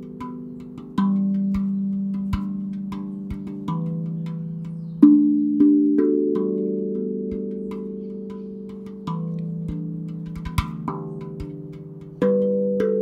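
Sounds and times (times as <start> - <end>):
steel tongue drum notes: 0.0 - 13.0.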